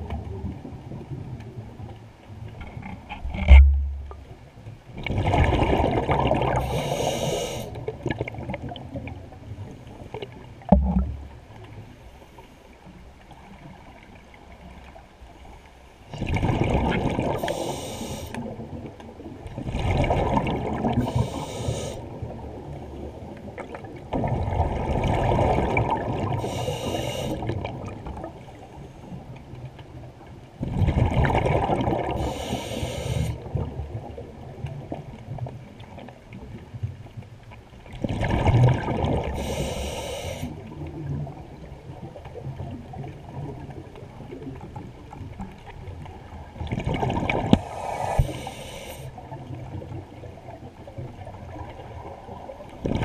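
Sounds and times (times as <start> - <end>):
exhaled bubbles rushing: 5.0 - 6.8, 16.2 - 17.5, 19.6 - 21.4, 22.1 - 26.5, 30.6 - 32.3, 38.0 - 39.4, 46.3 - 48.5, 51.2 - 53.0
high regulator hiss: 6.6 - 7.7, 17.4 - 18.4, 21.0 - 22.0, 26.4 - 27.4, 32.2 - 33.4, 39.4 - 40.5, 47.6 - 49.1.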